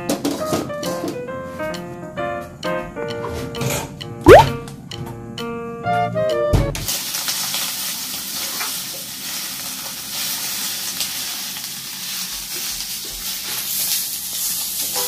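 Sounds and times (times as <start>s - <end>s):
food sizzling in wok: 6.9s - 15.0s.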